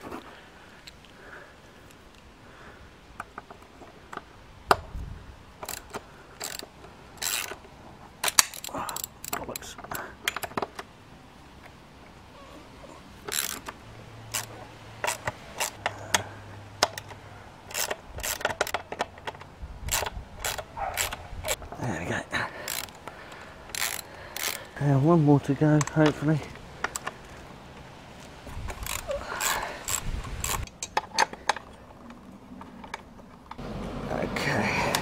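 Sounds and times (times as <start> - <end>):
socket ratchet wrench clicking: 5.6 - 10.8, 13.2 - 16.2, 16.8 - 21.6, 22.6 - 24.8, 28.5 - 31.6.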